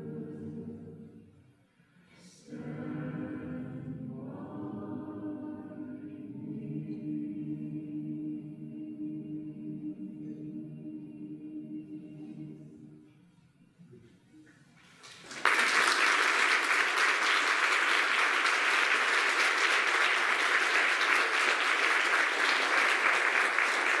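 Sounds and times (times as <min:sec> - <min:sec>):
audience applause: 0:15.0 - 0:24.0.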